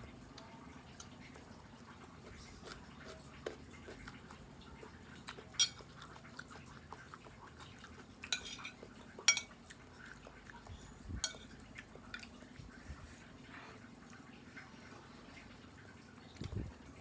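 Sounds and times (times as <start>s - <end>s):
cutlery scraping a ceramic plate: 8.3s - 9.5s.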